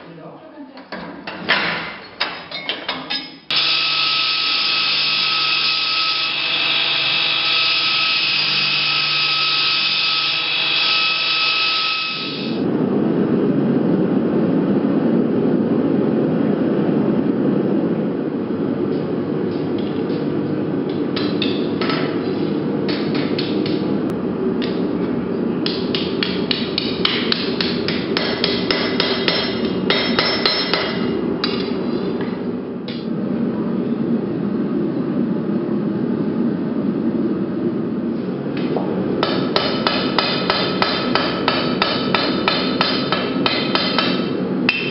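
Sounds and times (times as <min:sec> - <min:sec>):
hammer on steel on anvil: 0:25.6 - 0:31.8, 0:39.2 - 0:44.9.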